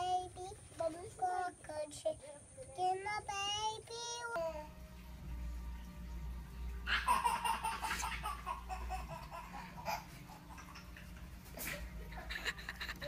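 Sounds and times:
baby laughing: 0:06.9 - 0:13.0.

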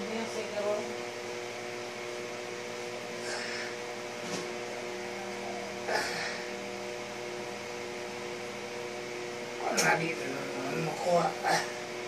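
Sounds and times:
steady mechanical hum: 0:00.0 - 0:12.0.

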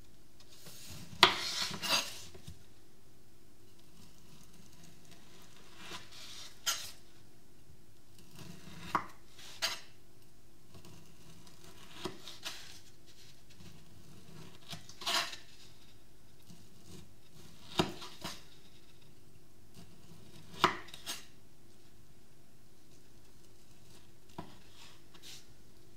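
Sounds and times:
knife slicing kiwi peel: 0:00.9 - 0:02.2, 0:14.6 - 0:15.5.

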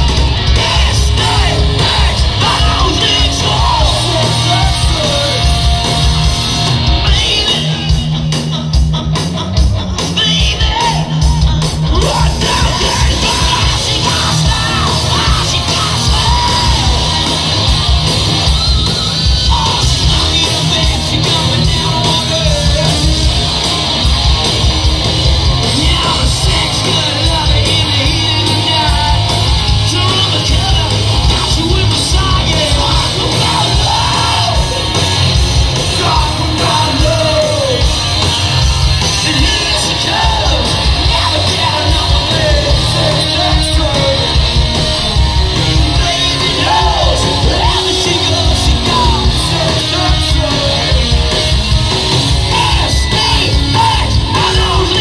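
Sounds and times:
drums: 0:00.0 - 0:55.0
electric guitars: 0:00.0 - 0:55.0.

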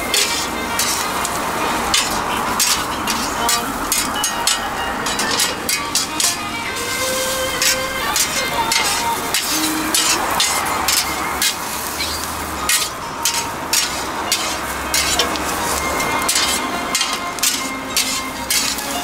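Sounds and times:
metal spatulas scraping and clacking: 0:00.0 - 0:19.0
sausages sizzling on a griddle: 0:00.0 - 0:19.0.

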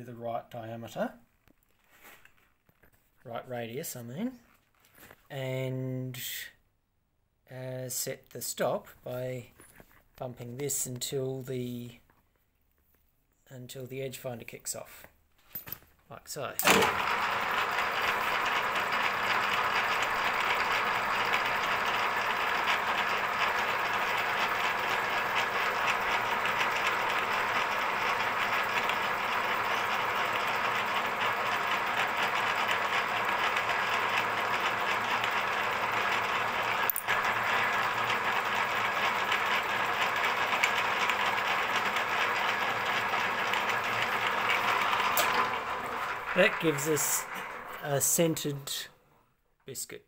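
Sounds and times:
milling machine rattling: 0:16.6 - 0:48.8.

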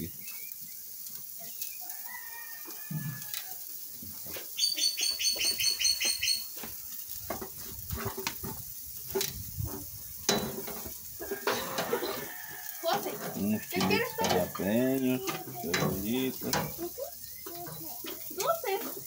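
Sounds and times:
bird trilling: 0:04.6 - 0:06.5.

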